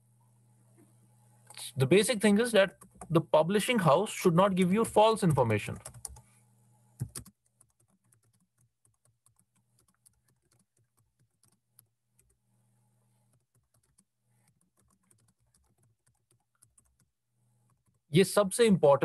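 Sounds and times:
faint low electrical hum: 0.0 - 19.0
keyboard typing: 2.3 - 3.2, 4.8 - 6.3, 6.9 - 12.4, 13.2 - 18.1.

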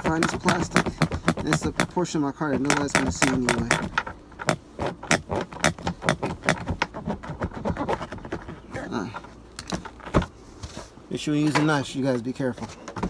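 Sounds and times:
knife cutting carpet: 0.0 - 8.6.

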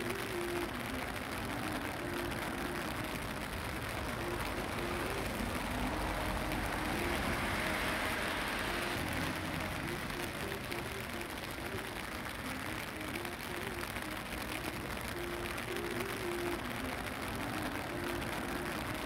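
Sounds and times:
faint simple tune: 0.0 - 19.0
rain hiss: 0.0 - 19.0.

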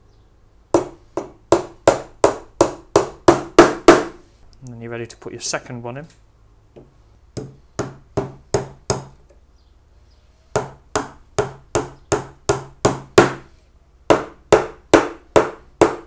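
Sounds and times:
hammer tapping pins into wood: 0.8 - 4.2, 6.8 - 9.4, 10.6 - 13.4, 14.1 - 16.0.

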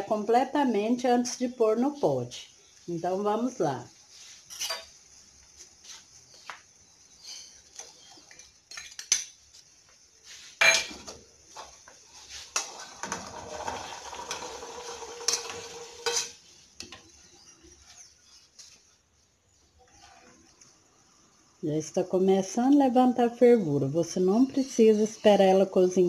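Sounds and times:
spoon scraping a pan: 4.3 - 5.0, 10.5 - 18.8, 19.8 - 20.7.

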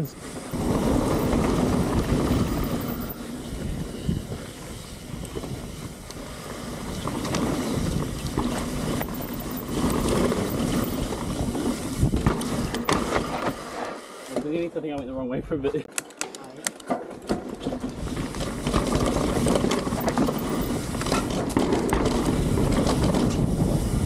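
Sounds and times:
wind rushing over microphone: 0.0 - 13.6, 17.8 - 24.0
bike knocking over rough ground: 6.8 - 13.6, 16.8 - 23.6.

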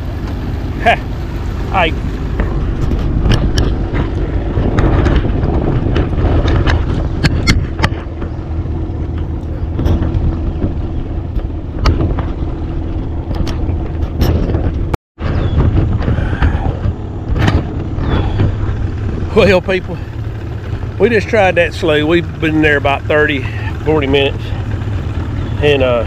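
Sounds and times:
boat motor rumbling: 0.0 - 26.0
sharp knocks and clicks: 2.4 - 8.4, 9.0 - 12.5, 13.2 - 18.8.

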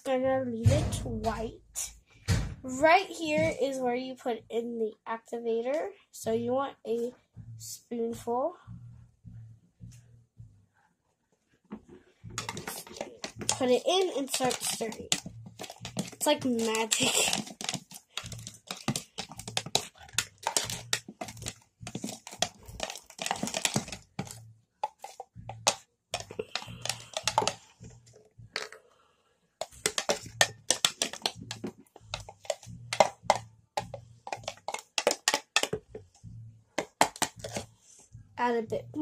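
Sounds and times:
metal spoon stirring slime in cup: 12.4 - 27.7, 29.6 - 36.1, 36.8 - 37.7.

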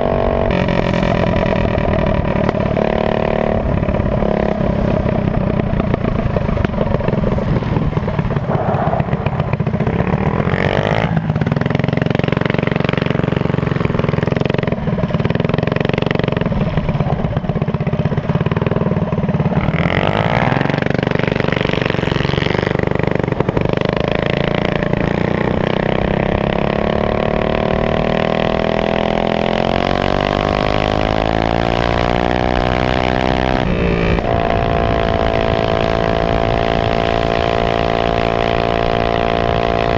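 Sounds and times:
small engine running hard: 0.0 - 39.9.

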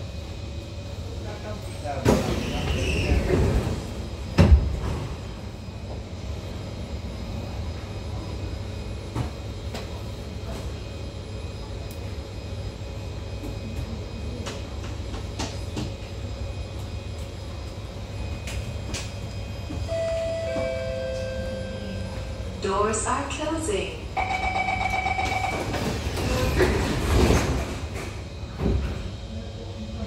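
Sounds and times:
train interior low hum: 0.0 - 30.0.

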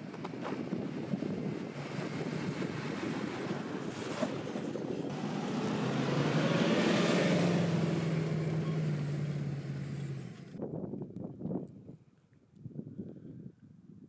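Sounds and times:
wind noise: 0.0 - 9.0, 10.4 - 14.0
car engine pulling uphill: 0.0 - 10.6.

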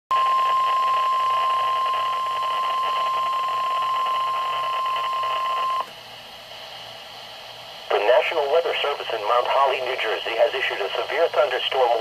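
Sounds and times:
radio static: 0.1 - 5.9, 7.9 - 12.0
weather radio alarm tone: 0.1 - 5.9.

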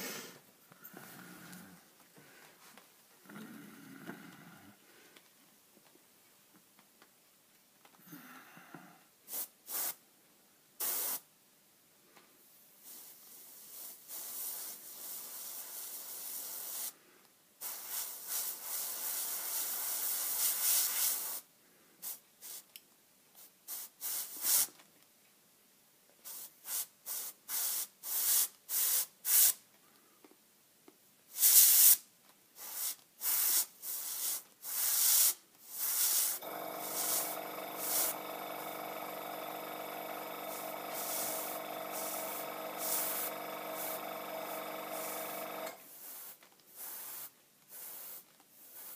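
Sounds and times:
airbrush spraying in hissing bursts: 9.3 - 10.0, 10.8 - 11.3, 12.8 - 17.0, 17.6 - 22.7, 23.4 - 24.8, 26.2 - 29.6, 31.3 - 32.0, 32.6 - 48.9.

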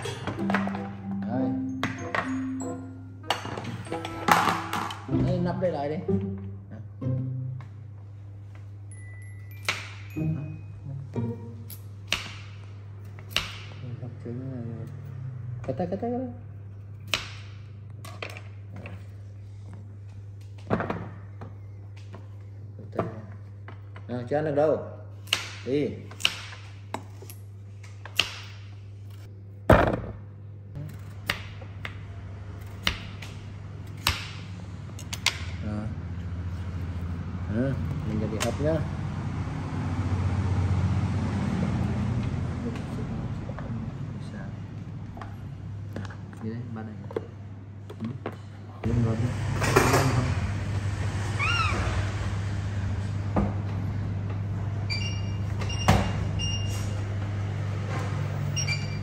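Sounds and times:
baby monkey squealing: 51.4 - 51.9.

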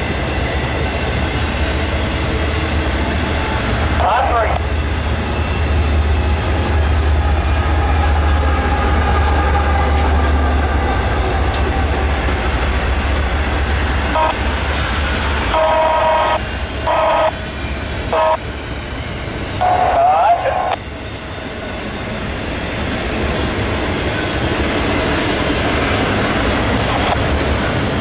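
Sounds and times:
diesel locomotive rumbling: 0.0 - 28.0
locomotive horn: 14.0 - 14.7, 15.4 - 17.4, 18.1 - 18.4.

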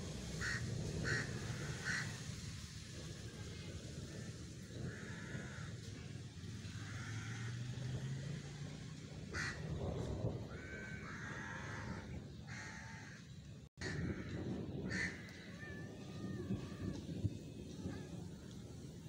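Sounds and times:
crow cawing: 0.4 - 2.3, 4.8 - 5.8, 6.7 - 7.7, 9.3 - 9.6, 10.5 - 16.7.

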